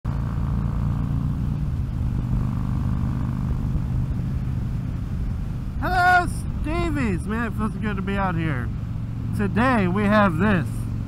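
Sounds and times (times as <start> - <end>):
motorcycle engine droning: 0.1 - 11.0.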